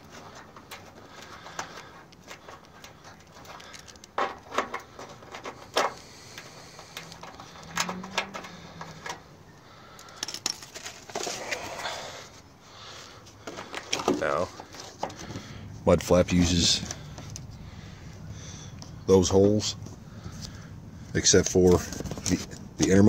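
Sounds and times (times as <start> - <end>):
hand tapping and scraping plastic: 0.0 - 9.3, 13.3 - 15.6.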